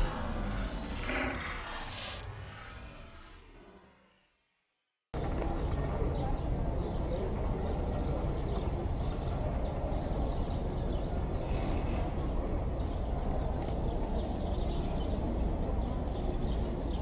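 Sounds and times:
low rumble: 0.0s - 4.5s.

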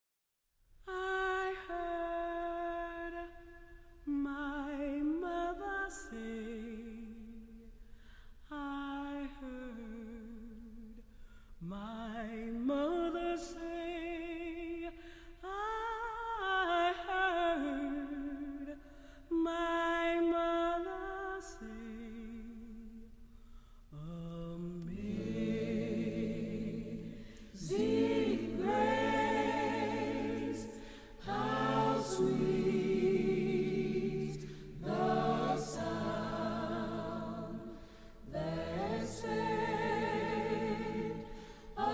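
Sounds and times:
person singing with vibrato: 0.9s - 7.6s, 23.9s - 41.9s
voices singing in harmony: 24.0s - 41.9s.

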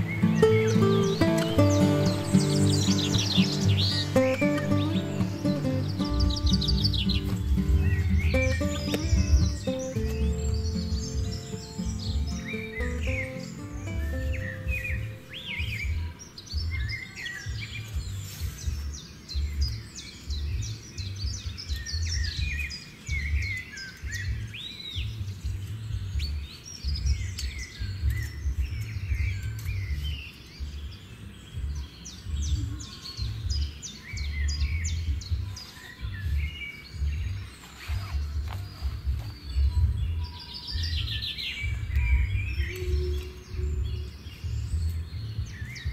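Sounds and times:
heavy uneven low rumble: 0.0s - 16.8s
small birds chirping: 0.0s - 45.9s.

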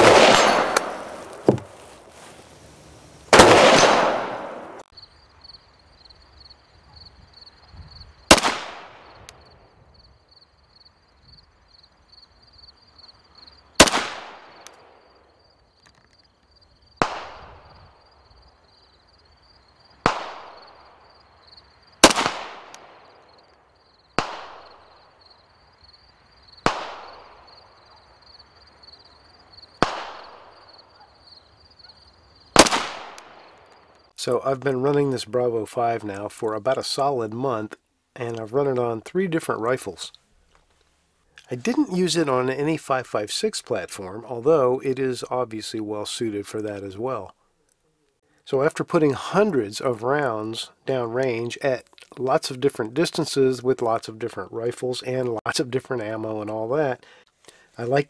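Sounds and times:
rifle shots with echo: 0.0s - 1.6s, 3.3s - 4.8s, 8.3s - 9.2s, 13.8s - 15.0s, 17.0s - 17.7s, 20.0s - 20.8s, 22.0s - 23.1s, 24.2s - 24.8s, 26.6s - 27.5s, 29.8s - 30.6s, 32.6s - 33.6s.

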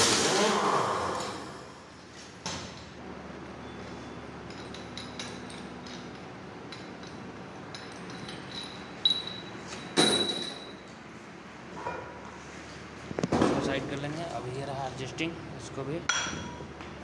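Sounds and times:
small metallic clicks and clinks: 4.4s - 10.8s
sharp metal clanks: 7.8s - 10.8s.

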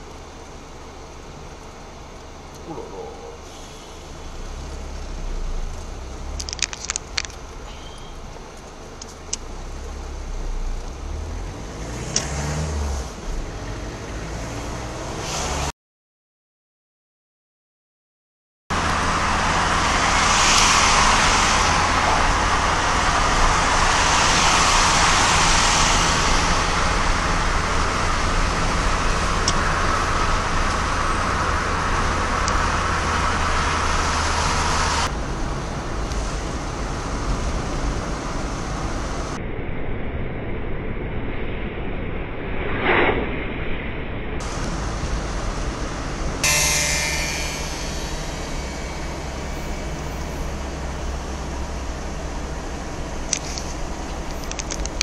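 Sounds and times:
low engine hum: 0.0s - 15.7s, 18.7s - 42.6s, 43.4s - 55.0s
tyre road noise: 0.0s - 15.7s, 18.7s - 39.5s, 44.4s - 55.0s
wind noise on vehicle: 18.8s - 42.5s, 49.9s - 55.0s.

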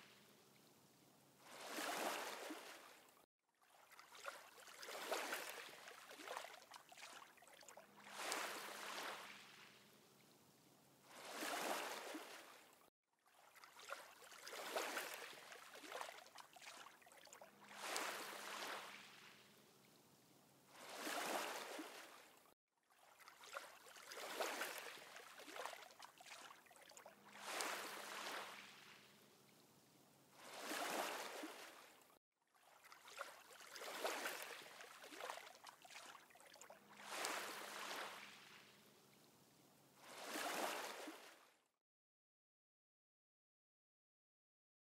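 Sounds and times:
washing water swells: 1.4s - 9.8s, 11.1s - 19.5s, 20.7s - 29.2s, 30.3s - 38.7s, 40.0s - 41.5s.

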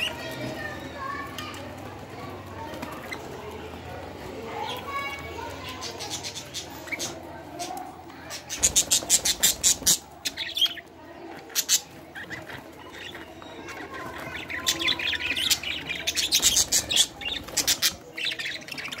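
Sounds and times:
budgerigars chattering and squawking: 5.5s - 19.0s.

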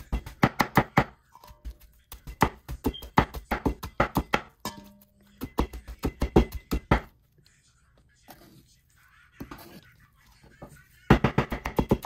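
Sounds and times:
knife chopping on cutting board: 0.0s - 7.1s, 11.1s - 12.0s.

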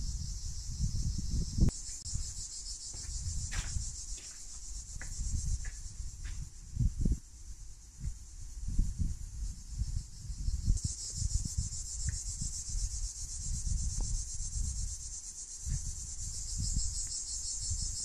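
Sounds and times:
high-pitched insect chorus: 0.0s - 18.0s
low rumble on microphone: 5.1s - 17.0s.

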